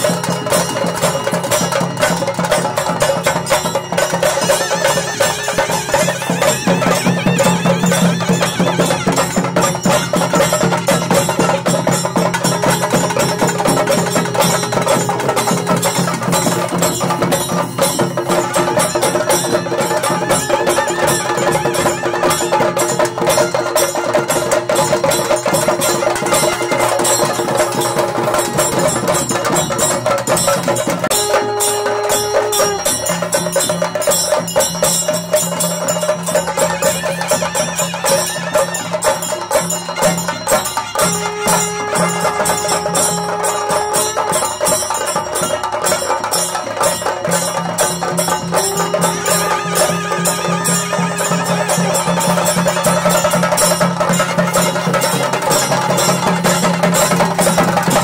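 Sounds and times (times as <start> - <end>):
fast dense drumming: 0.0 - 58.0
wind instrument long notes: 3.3 - 58.0.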